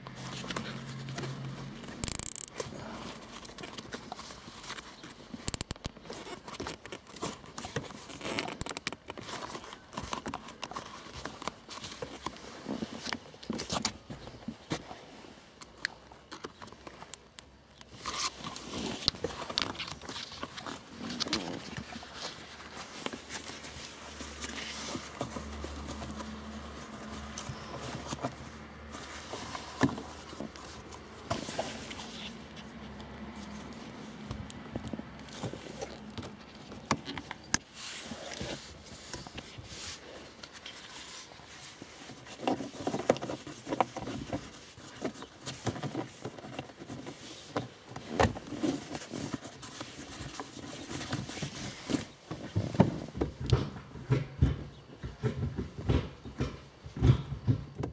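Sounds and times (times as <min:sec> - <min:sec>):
leather and plastic rustling: 0:00.0 - 0:57.9
sharp clicks and taps: 0:05.4 - 0:06.0.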